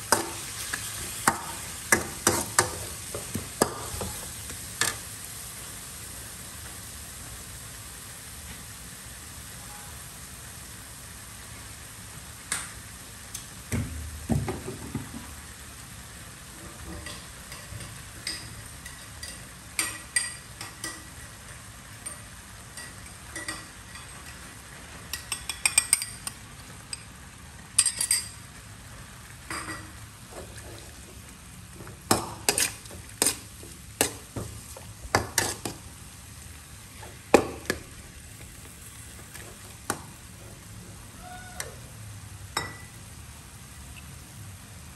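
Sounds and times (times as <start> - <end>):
low sizzle: 0.0 - 44.9
metal ladle scraping a wok: 32.4 - 34.3.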